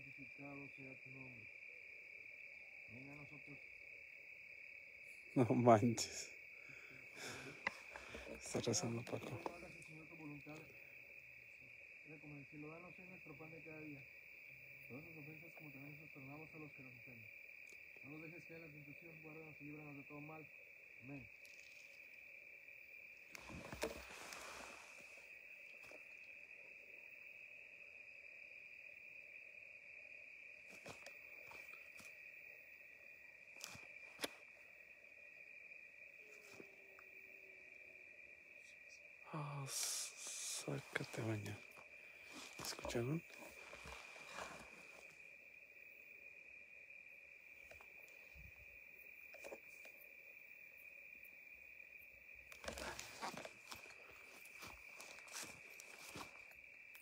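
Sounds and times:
crickets trilling: 0.0s - 57.0s
footsteps crunching on dry ground: 42.3s - 44.9s, 52.7s - 56.6s.

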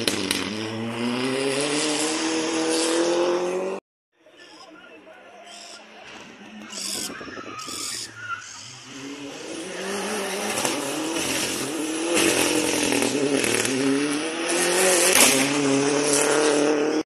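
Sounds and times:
rally car engine revving: 0.0s - 3.8s, 8.3s - 17.0s.

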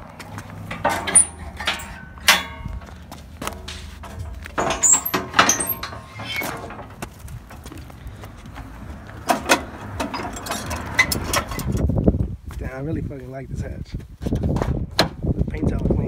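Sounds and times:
metal clanks and rattles: 0.0s - 12.1s.

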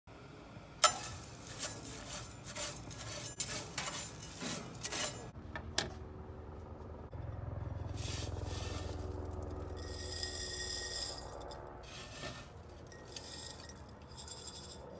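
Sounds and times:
spatula scraping eggshells in pan: 0.8s - 5.4s, 7.8s - 14.9s.

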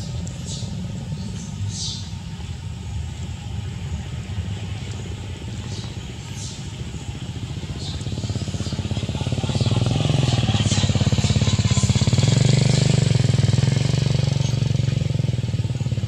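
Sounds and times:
small petrol engine running: 6.7s - 16.0s.

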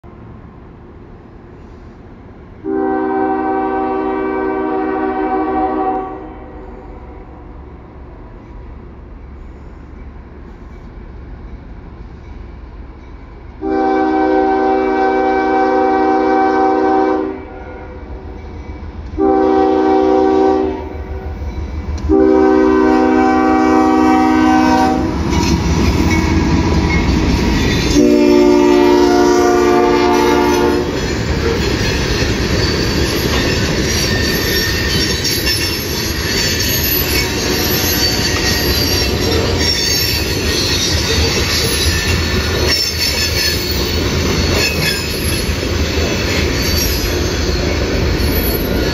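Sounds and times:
locomotive air horn blasts: 2.6s - 6.8s, 13.6s - 18.1s, 19.2s - 21.3s, 22.1s - 25.1s, 27.9s - 31.0s
train wheels clattering on rails: 23.7s - 48.9s.

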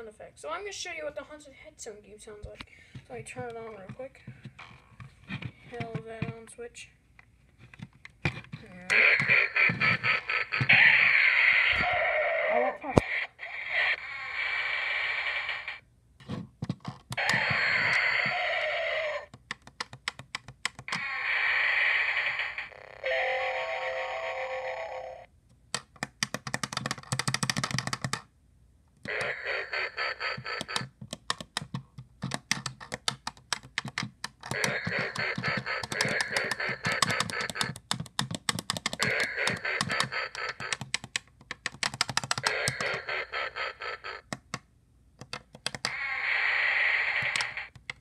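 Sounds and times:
electronic toy sound effects: 8.7s - 15.8s, 17.2s - 19.3s, 20.9s - 25.3s, 29.1s - 30.9s, 34.5s - 37.7s, 39.0s - 40.8s, 42.4s - 44.3s, 45.8s - 47.8s
rapid crackle of clicks: 26.0s - 28.2s, 29.1s - 44.6s, 45.2s - 48.0s.

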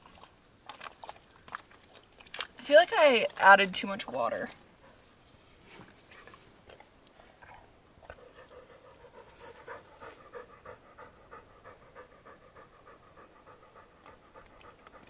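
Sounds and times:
dog panting: 7.5s - 15.0s.

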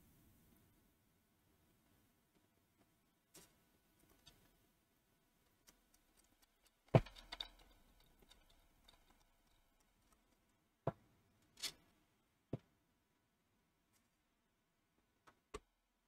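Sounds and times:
light rattling of screws: 5.4s - 10.6s.

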